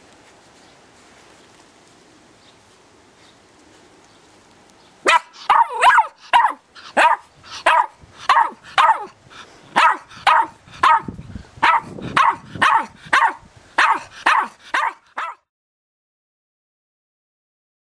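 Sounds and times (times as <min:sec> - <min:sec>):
puppy barking high-pitched: 0:05.0 - 0:15.5.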